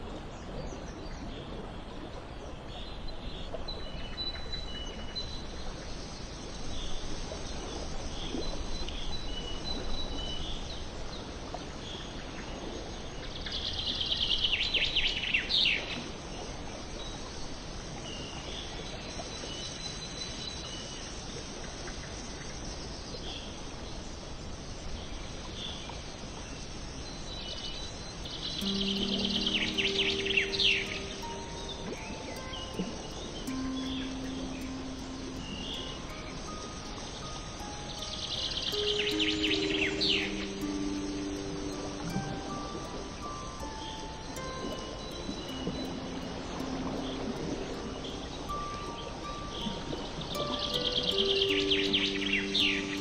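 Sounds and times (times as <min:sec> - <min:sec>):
outdoor ambience hiss: 0:00.0 - 0:53.0
trilled bird song: 0:27.0 - 0:53.0
birds chirping: 0:27.8 - 0:53.0.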